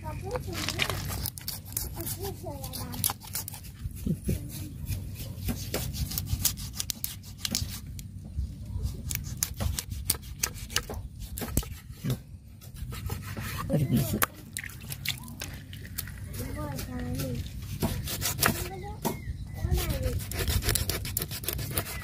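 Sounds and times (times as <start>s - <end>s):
knife cutting fish on wooden board: 16.7s - 19.2s, 20.0s - 22.0s.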